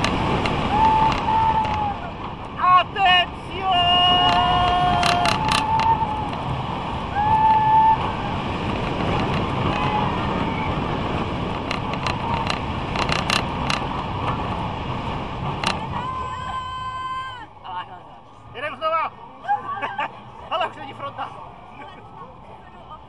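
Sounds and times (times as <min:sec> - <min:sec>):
sharp clicks and rattles: 0:00.0 - 0:01.8, 0:04.0 - 0:06.5, 0:08.6 - 0:09.8, 0:11.2 - 0:14.6, 0:15.2 - 0:15.9
rushing wind and rumble: 0:00.0 - 0:23.0.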